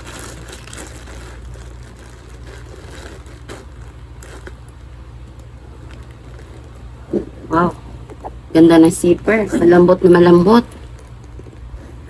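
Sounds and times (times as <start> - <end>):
plastic crinkling: 0.0 - 7.4, 10.3 - 12.0
steady low hum: 0.0 - 12.0.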